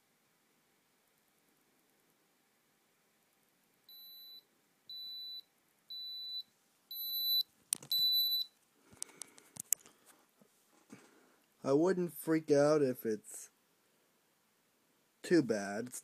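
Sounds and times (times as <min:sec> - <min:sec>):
digital thermometer beeping: 0:03.9 - 0:08.6.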